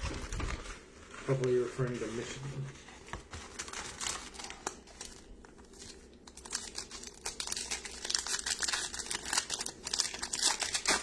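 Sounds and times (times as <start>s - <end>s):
foil wrapper crinkling and tearing: 3.5s - 11.0s.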